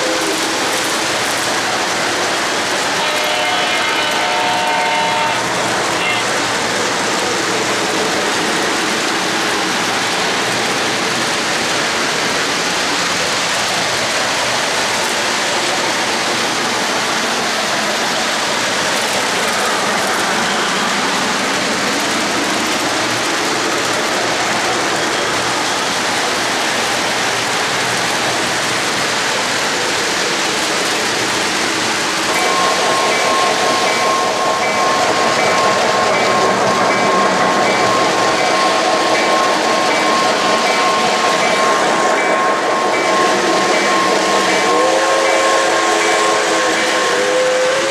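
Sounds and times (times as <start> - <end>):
metal wheels rolling on rails: 0.0 - 44.7.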